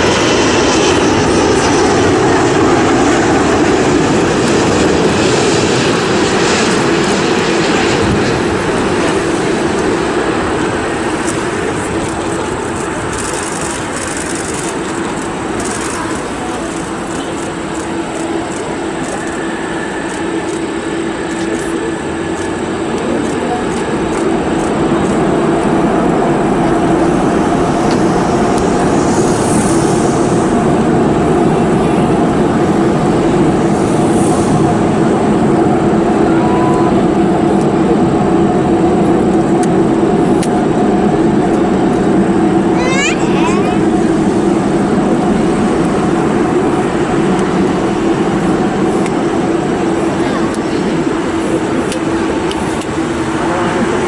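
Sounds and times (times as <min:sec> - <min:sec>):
jet engine rumble: 0:00.0 - 0:54.0.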